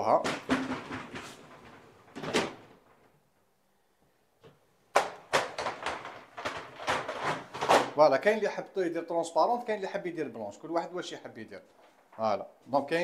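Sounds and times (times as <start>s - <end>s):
plastic panels clicking and clattering: 0.0s - 3.1s, 4.4s - 8.0s.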